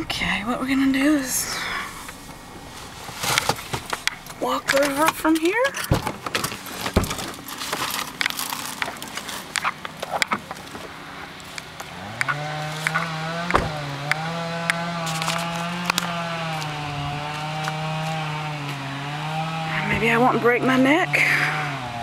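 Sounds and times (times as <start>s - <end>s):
footsteps crunching on branches: 6.0s - 19.6s
chainsaw running at high speed: 11.0s - 22.0s.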